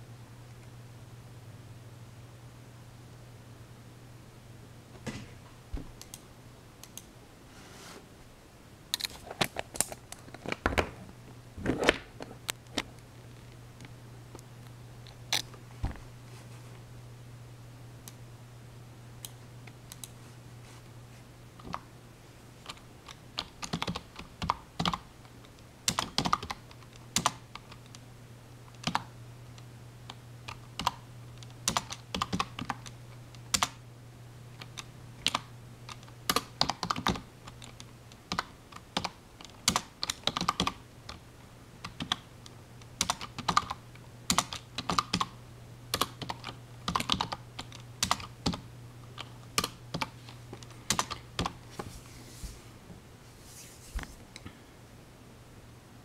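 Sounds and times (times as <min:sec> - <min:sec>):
steady low hum: 0:00.0 - 0:56.0
typing on a computer keyboard: 0:22.6 - 0:25.0, 0:25.9 - 0:28.0, 0:28.8 - 0:29.1, 0:30.5 - 0:33.8, 0:34.6 - 0:41.2, 0:41.8 - 0:42.3, 0:43.0 - 0:45.3, 0:45.9 - 0:48.6, 0:49.2 - 0:51.6.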